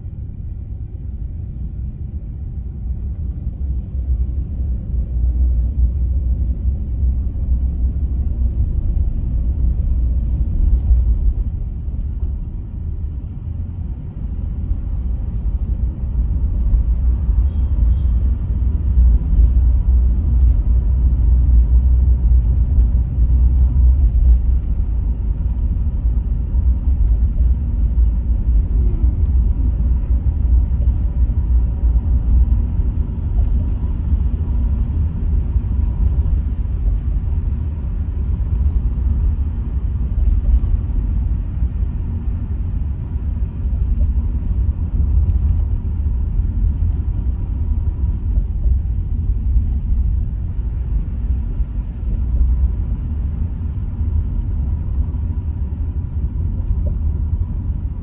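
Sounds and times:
car road rumble: 0.0 - 58.0.

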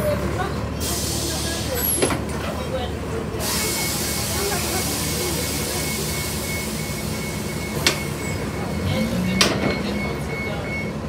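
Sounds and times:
bus engine low rumble: 0.0 - 11.0
electronic warning beeper: 5.4 - 11.0.

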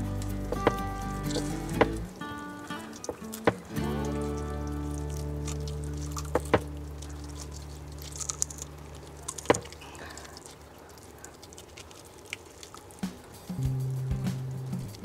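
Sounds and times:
background music: 0.0 - 9.0, 13.0 - 15.0
fish skin squishing: 0.0 - 13.6.

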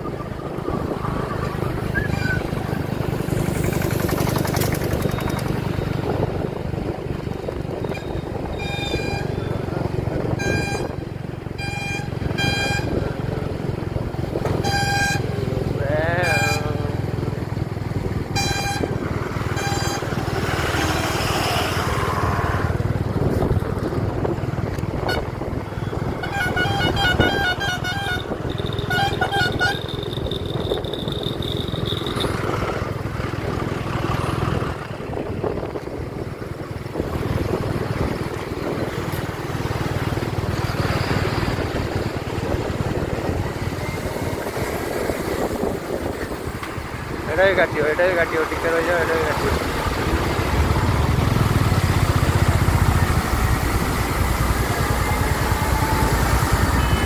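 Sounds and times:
motorcycle engine and wind: 0.0 - 57.0
vehicle horn beeping: 7.8 - 9.6, 10.2 - 13.1, 14.5 - 15.4, 16.2 - 17.0, 18.3 - 20.3, 25.0 - 32.6, 56.6 - 57.0.

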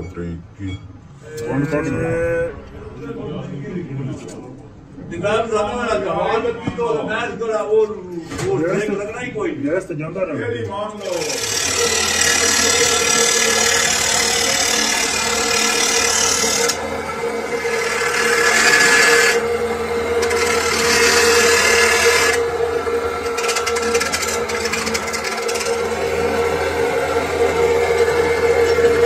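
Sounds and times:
chop saw grinding steel: 11.0 - 29.0
saw motor hum: 11.0 - 29.0.

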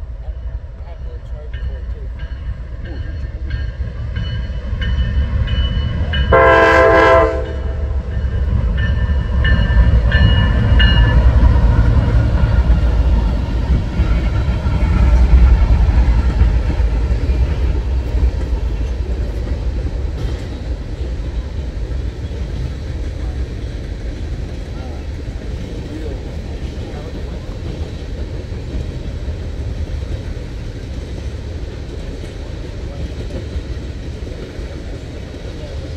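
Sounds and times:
locomotive rumble: 0.0 - 35.9
rolling tank cars: 0.0 - 35.9
train horn blast: 6.3 - 8.0.

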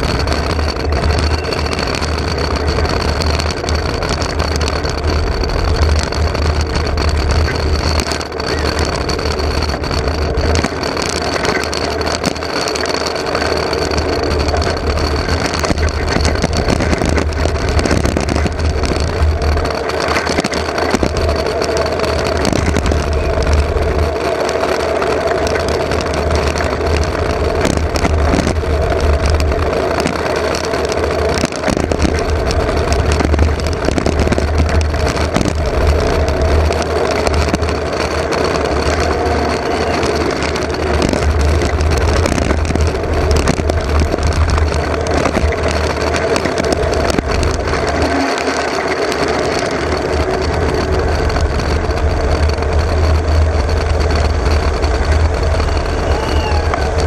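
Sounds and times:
cart body knocks and rattles: 0.0 - 24.1
wheels rumbling and whining: 0.0 - 57.0
wind buffeting microphone: 0.0 - 57.0.

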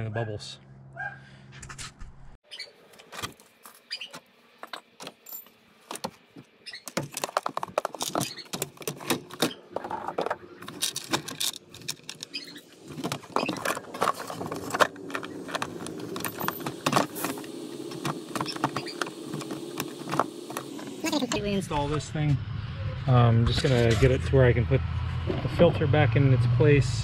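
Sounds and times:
hard plastic parts clicking: 6.9 - 20.7
steady low hum: 9.2 - 27.0.

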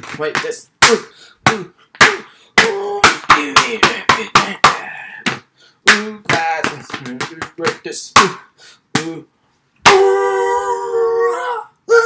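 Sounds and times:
sharp smacks and knocks: 0.0 - 9.2
short vocal cries: 9.8 - 12.0.

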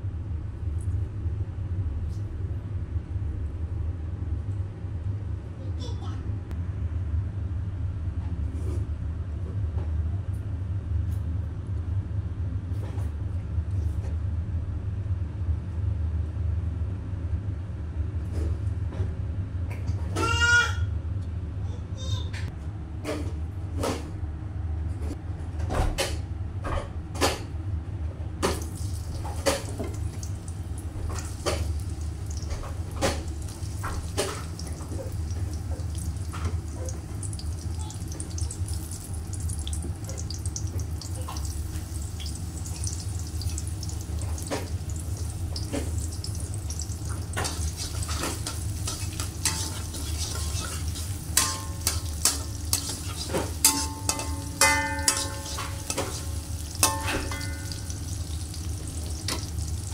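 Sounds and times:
garlic sizzling in hot oil: 28.5 - 59.9
metal spatula stirring: 45.6 - 58.3.

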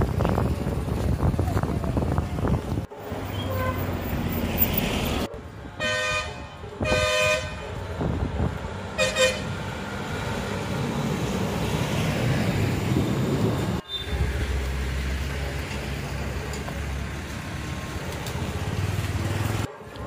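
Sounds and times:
train horn blasts: 3.3 - 3.9, 5.8 - 7.8, 9.0 - 9.6.

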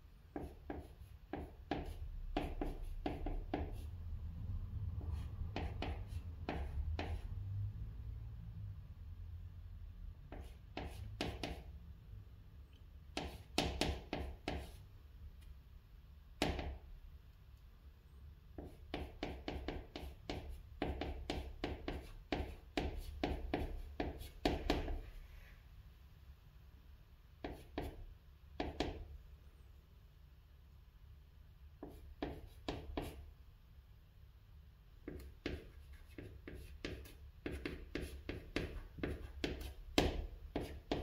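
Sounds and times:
chalk writing on chalkboard: 0.3 - 4.0, 5.0 - 7.4, 10.3 - 11.7, 13.1 - 14.9, 18.5 - 25.2, 27.4 - 29.1, 31.8 - 33.3, 35.0 - 41.0.

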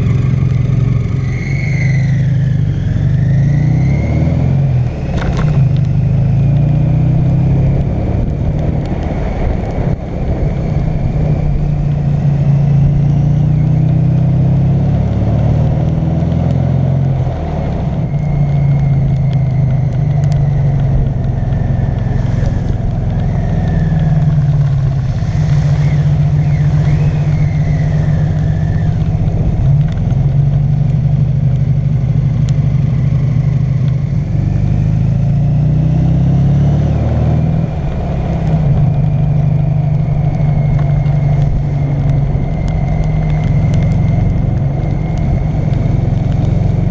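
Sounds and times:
trike engine running: 17.6 - 35.2.

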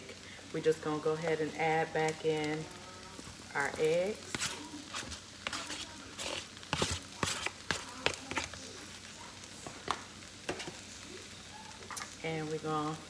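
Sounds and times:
rice sizzling in a wok: 0.0 - 13.0
wooden spoon knocking and scraping: 3.3 - 8.6.

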